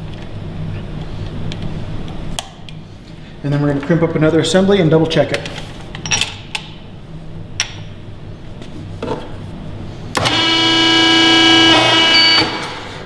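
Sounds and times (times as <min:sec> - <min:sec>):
hydraulic pump humming: 0:10.1 - 0:13.0.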